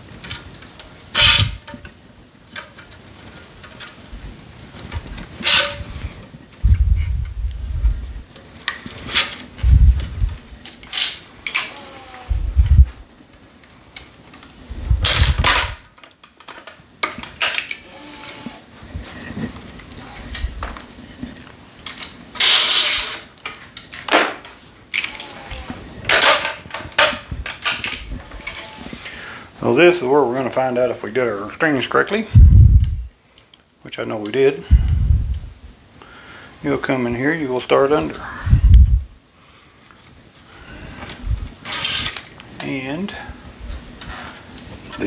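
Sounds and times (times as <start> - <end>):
string swishing and rustling: 8.8 - 11.2, 12.3 - 13.1.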